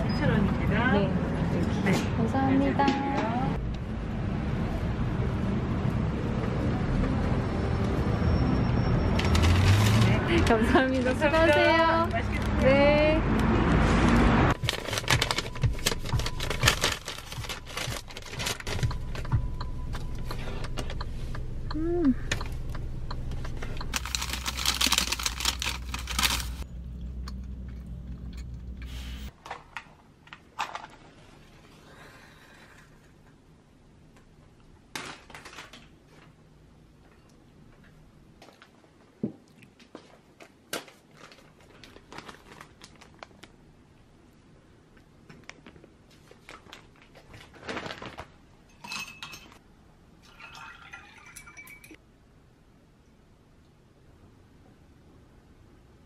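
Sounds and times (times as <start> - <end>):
paper bag crinkling: 9.2 - 11.5, 14.5 - 19.2, 23.9 - 26.7, 40.8 - 43.6, 45.6 - 48.4
glass clink: 48.7 - 49.6, 50.3 - 52.0
water poured into glass: 50.2 - 52.0.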